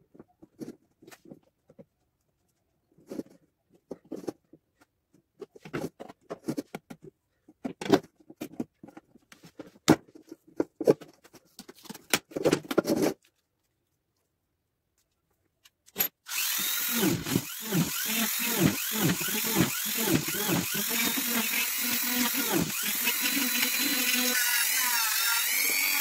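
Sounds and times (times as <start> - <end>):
rotary tool grinding: 16.0 - 26.0.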